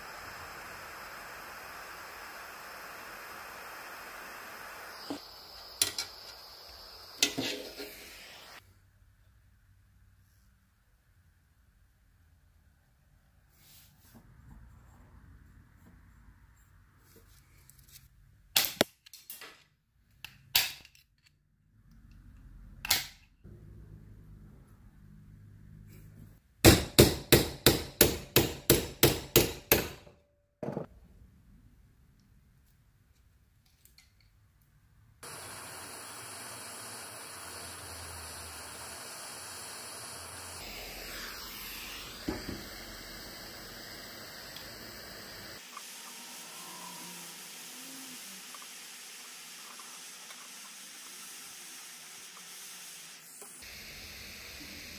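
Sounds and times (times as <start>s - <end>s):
gas torch flame hissing: 0.0s - 8.6s, 35.2s - 54.9s.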